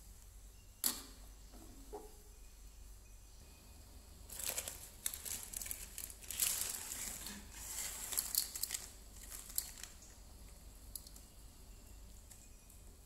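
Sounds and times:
plastic packet crinkling and tearing: 4.3s - 10.2s.

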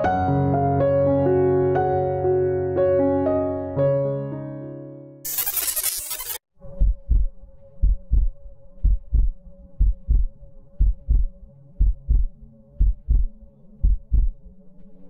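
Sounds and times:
heartbeat thumps: 6.7s - 14.5s.

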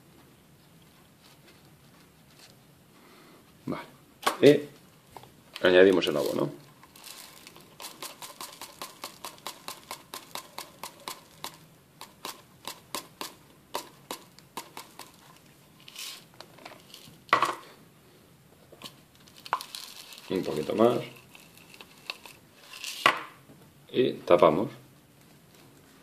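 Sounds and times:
granules dropping into bottle: 19.2s - 23.3s.

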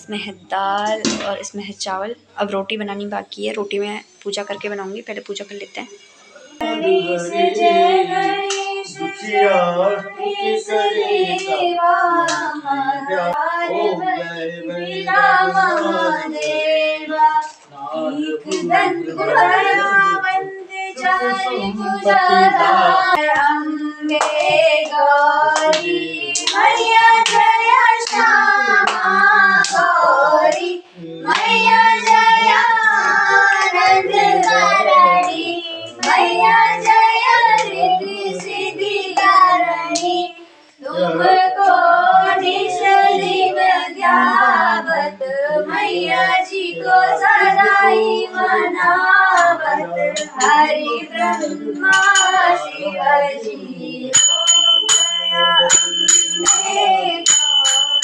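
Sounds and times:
women and girl singing: 6.4s - 58.0s
hand claps: 8.4s - 8.7s, 24.1s - 25.0s, 25.6s - 29.9s, 31.3s - 32.2s, 34.4s - 37.8s, 51.3s - 52.5s, 54.2s - 58.0s.

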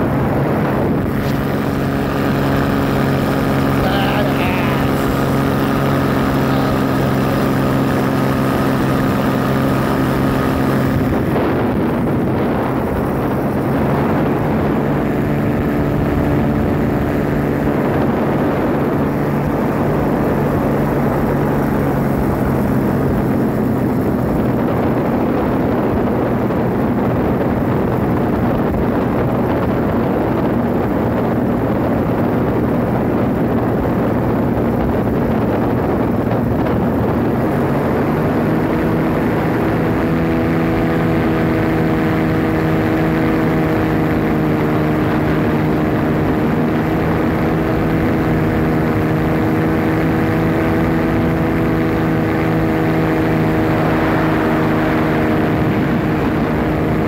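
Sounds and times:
paramotor engine and propeller: 0.0s - 57.0s
wind rushing over microphone: 0.0s - 57.0s.

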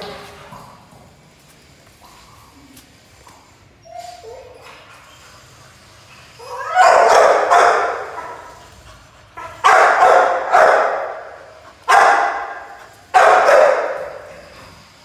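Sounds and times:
dog barking loudly with echo: 6.6s - 8.5s, 9.6s - 14.3s.

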